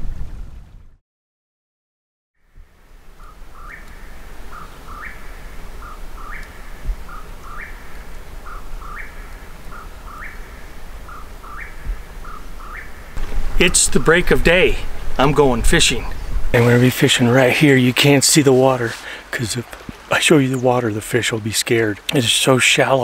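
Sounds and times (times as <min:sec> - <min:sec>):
songbird singing: 0:02.4 - 0:23.0
low rumble: 0:13.2 - 0:16.6.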